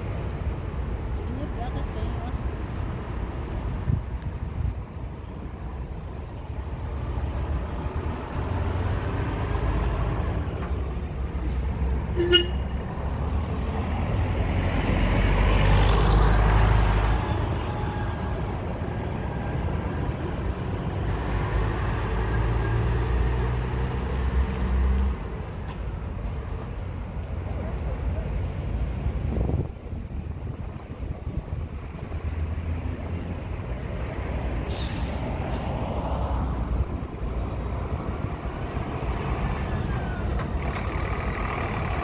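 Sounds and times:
bus diesel engine driving past: 0.0s - 42.0s
short horn toot: 12.2s - 12.7s
tyre and air noise: 33.0s - 39.5s.

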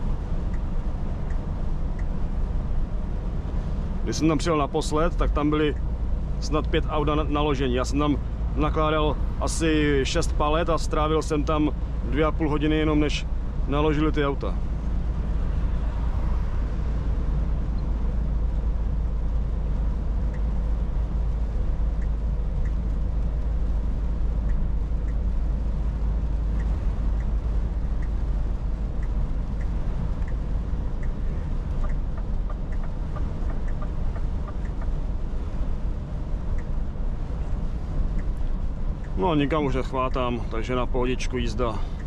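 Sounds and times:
truck engine and road drone: 0.0s - 42.0s
faint light ticking: 0.3s - 2.2s, 17.7s - 42.0s.

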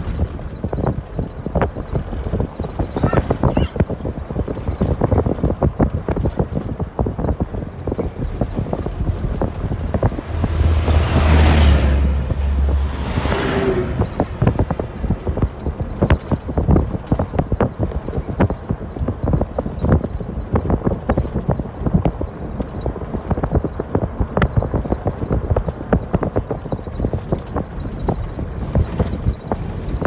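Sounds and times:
car driving on rough dirt road: 0.0s - 30.0s
dump truck passing: 0.0s - 30.0s
knocks and rattles: 0.0s - 30.0s
wind buffeting microphone: 0.0s - 30.0s.

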